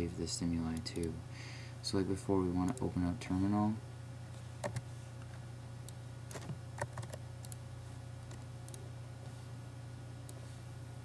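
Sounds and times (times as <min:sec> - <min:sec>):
steady low hum: 0:00.0 - 0:11.0
computer keyboard clicks: 0:06.3 - 0:07.6.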